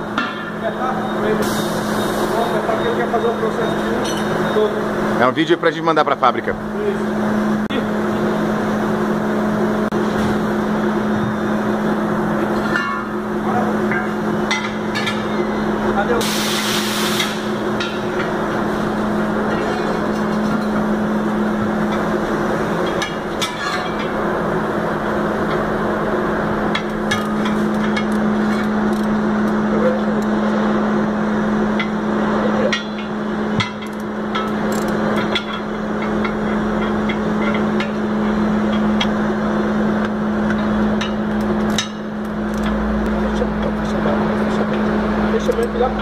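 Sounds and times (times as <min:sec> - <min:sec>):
machine hum: 0:00.0 - 0:46.0.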